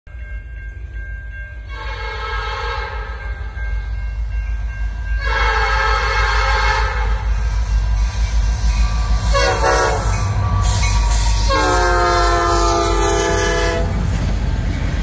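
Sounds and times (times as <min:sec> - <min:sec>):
locomotive air horn blasts: 0:01.7 - 0:03.2, 0:05.2 - 0:07.3, 0:09.2 - 0:14.1.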